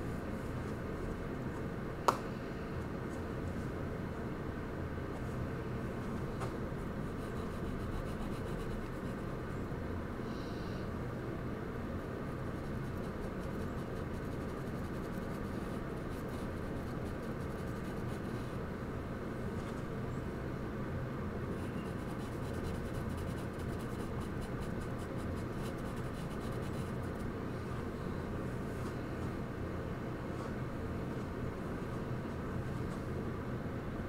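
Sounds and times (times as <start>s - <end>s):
low room rumble: 0.0s - 34.0s
charcoal scratching on paper: 7.1s - 9.4s, 12.0s - 18.5s, 21.6s - 27.3s.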